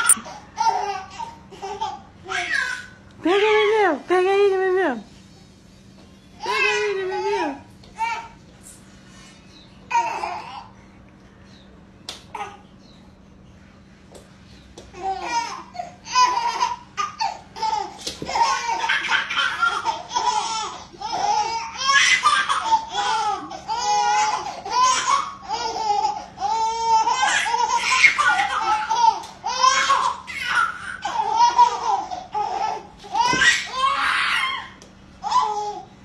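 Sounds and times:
babies laughing and squealing: 0.0s - 3.0s, 9.3s - 10.8s, 15.0s - 35.9s.

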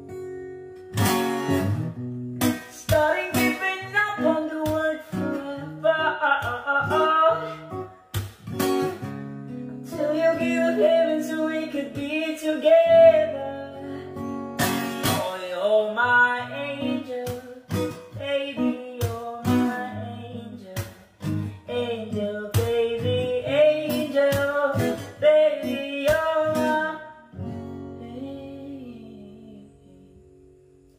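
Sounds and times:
acoustic guitar strumming: 0.0s - 30.9s
man singing: 2.6s - 8.1s, 9.8s - 14.2s, 15.0s - 27.3s.

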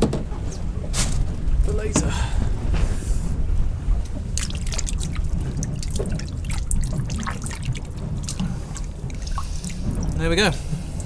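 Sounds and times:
steady low rumble: 0.0s - 11.0s
water sloshing and splashing: 3.5s - 11.0s.

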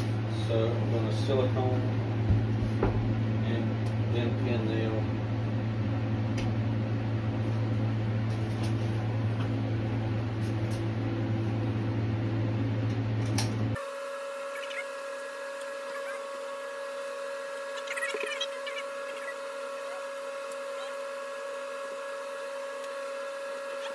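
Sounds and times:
low machine hum: 0.0s - 23.9s
high steady whine: 13.7s - 23.9s.

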